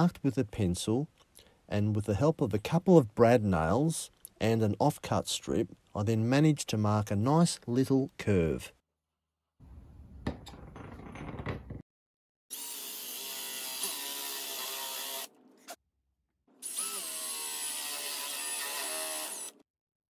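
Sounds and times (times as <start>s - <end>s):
cordless drill boring into wood: 12.5s - 15.3s, 16.6s - 19.6s.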